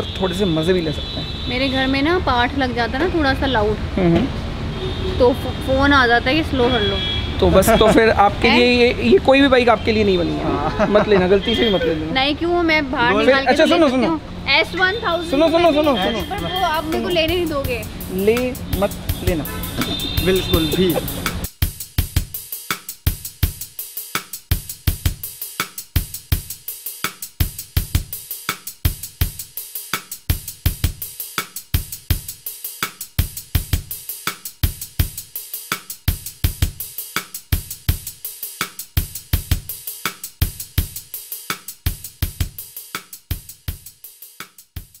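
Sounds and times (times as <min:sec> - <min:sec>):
music with driving drum beat: 0:07.5 - 0:45.0.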